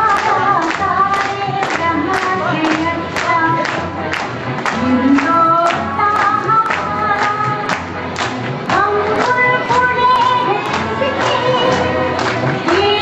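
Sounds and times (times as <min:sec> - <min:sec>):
musical accompaniment: 0:00.0 - 0:13.0.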